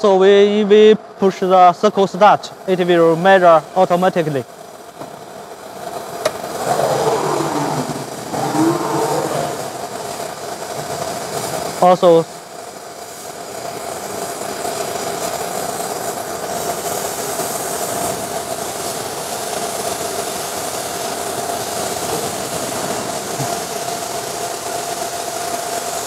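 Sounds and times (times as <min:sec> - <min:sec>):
machine whine: 0:06.2 - 0:11.5
even hiss: 0:06.2 - 0:26.0.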